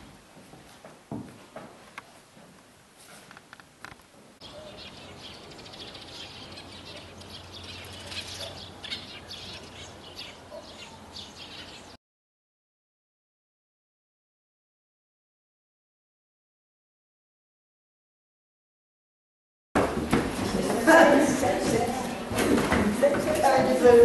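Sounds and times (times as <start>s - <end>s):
birds chirping: 4.4s - 12.0s.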